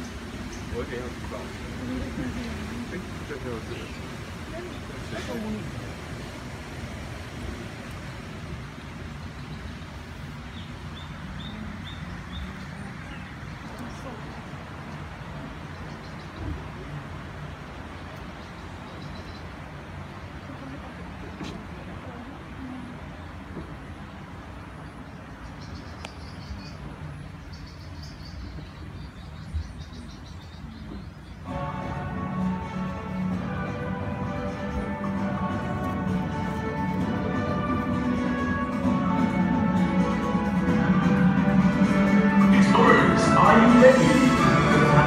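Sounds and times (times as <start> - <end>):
boat rumbling along water channel: 0.0 - 45.0
bird chirping: 9.3 - 14.4, 15.6 - 16.5, 18.3 - 20.2, 24.9 - 31.5.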